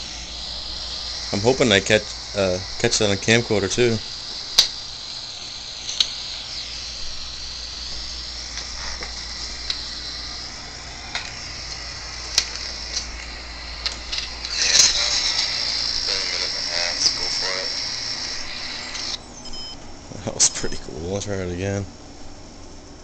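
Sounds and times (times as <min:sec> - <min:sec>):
recorder playback hiss: 0:00.0 - 0:23.0
sharp clicks: 0:04.5 - 0:04.9, 0:05.8 - 0:06.7, 0:08.0 - 0:10.1, 0:11.1 - 0:15.7.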